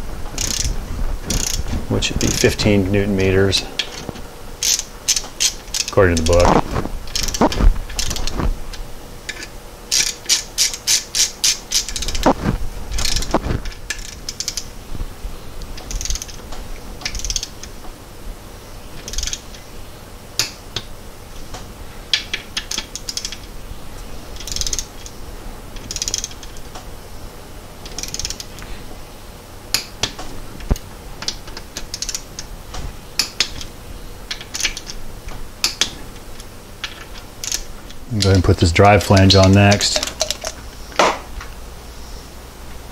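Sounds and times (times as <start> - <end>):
ratchet wrench clicking: 0.4 - 0.7, 1.3 - 1.6, 2.2 - 2.6, 4.6 - 6.4, 7.1 - 8.3, 9.3 - 12.2, 13.0 - 13.3, 13.9 - 14.7, 15.8 - 16.4, 17.0 - 17.7, 19.0 - 19.6, 22.6 - 23.5, 24.4 - 25.1, 25.8 - 26.6, 27.8 - 28.6, 31.8 - 32.2, 34.3 - 35.0, 36.8 - 37.7.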